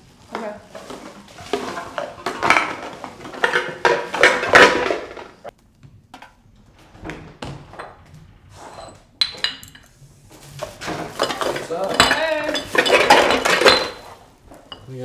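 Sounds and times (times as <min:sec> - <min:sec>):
glass bottles clinking: 0:01.6 - 0:05.5, 0:08.7 - 0:10.0, 0:10.6 - 0:15.0.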